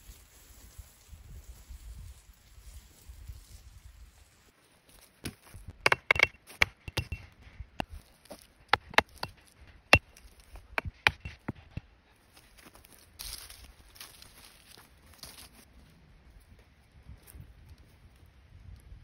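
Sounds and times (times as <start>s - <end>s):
hammer striking stake: 5.2s - 7.4s, 8.7s - 11.8s.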